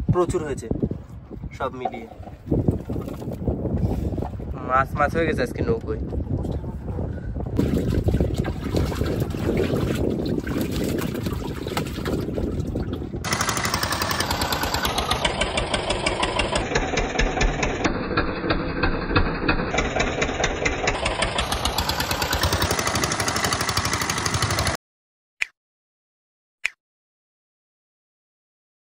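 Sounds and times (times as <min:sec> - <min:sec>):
wind: 0:00.0 - 0:24.8
water rushing along hull: 0:07.6 - 0:16.6, 0:20.8 - 0:24.7
boat engine chugging: 0:13.0 - 0:24.8.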